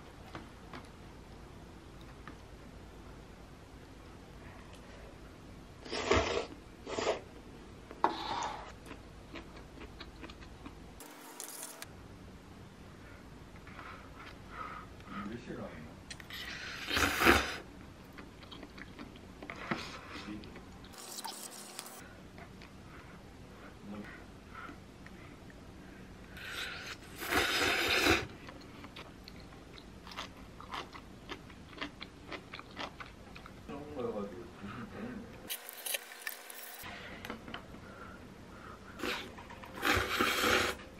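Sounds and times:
slurping noodles: 5.8s - 7.2s, 16.3s - 17.6s, 26.4s - 28.3s, 39.0s - 40.8s.

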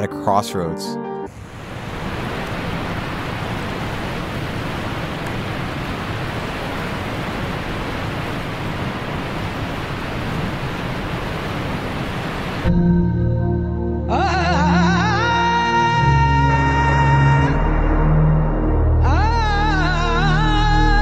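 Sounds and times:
turbulent water rushing: 1.3s - 12.7s.

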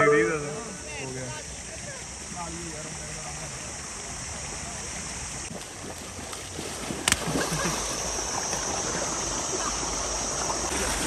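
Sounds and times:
rushing water: 0.0s - 11.0s
feet splashing through water: 5.5s - 11.0s.

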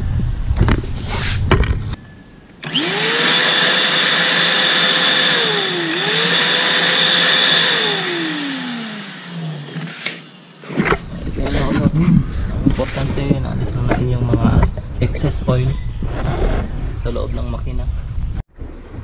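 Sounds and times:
vacuum cleaner motor whine: 2.6s - 10.9s.

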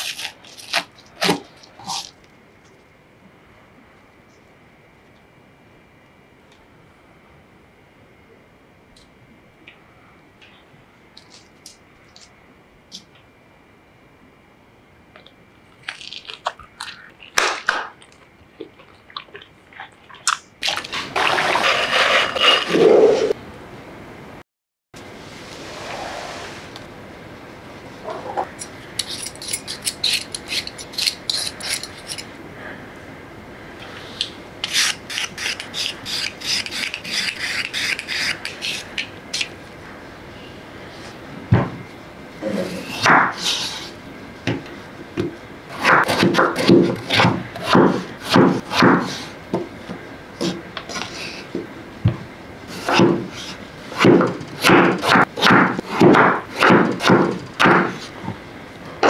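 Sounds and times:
peeler scraping potato: 21.5s - 22.9s, 28.6s - 32.3s, 34.6s - 39.5s
knife chopping on wooden board: 54.0s - 58.0s.

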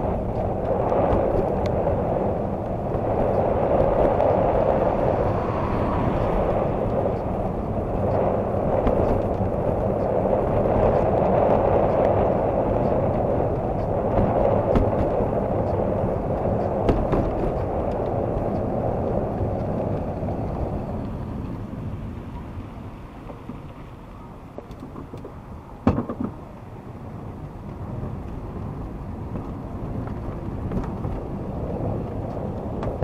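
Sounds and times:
wind rushing: 0.0s - 22.2s
tyres on wet road: 0.0s - 33.0s.

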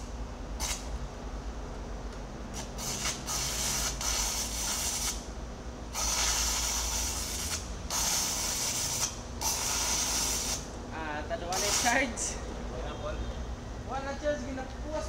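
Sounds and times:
welding arc crackling and hissing: 0.0s - 0.9s, 2.5s - 5.3s, 5.9s - 10.8s, 11.5s - 12.3s
steady low hum: 0.0s - 15.0s.

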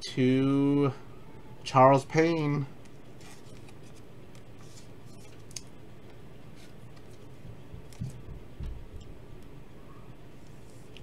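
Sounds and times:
steady low hum: 0.0s - 11.0s
trading cards and plastic case handled: 3.2s - 8.2s.

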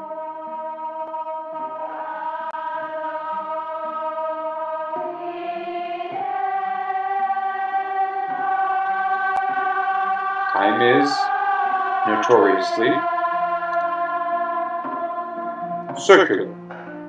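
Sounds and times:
choir-like intro music: 0.0s - 17.0s.

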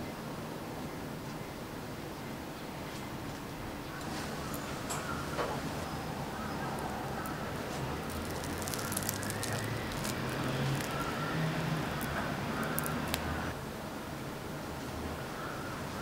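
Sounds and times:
low steady hum: 3.5s - 15.6s
fried crust crackling: 4.0s - 5.8s, 6.4s - 13.5s.

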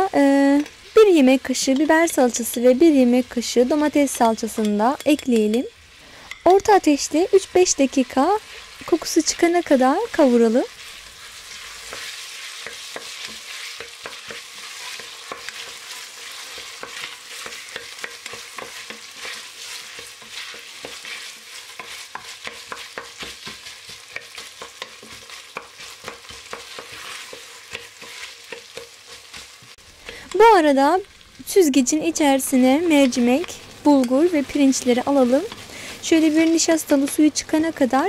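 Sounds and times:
vegetables sizzling in oil: 0.0s - 38.0s
wooden spoon tapping pot: 16.6s - 21.0s, 21.8s - 28.9s.

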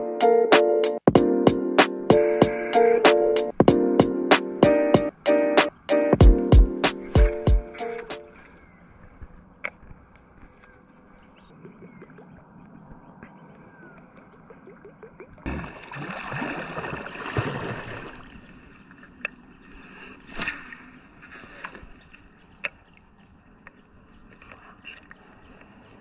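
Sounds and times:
paddle sloshing in water: 15.5s - 22.9s.

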